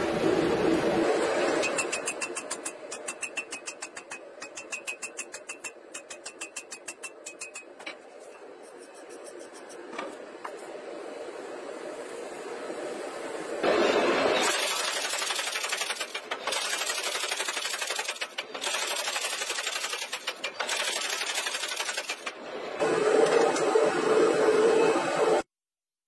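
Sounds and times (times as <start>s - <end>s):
steady noise with low hum: 0.0s - 25.4s
power hammer striking steel: 1.5s - 8.0s.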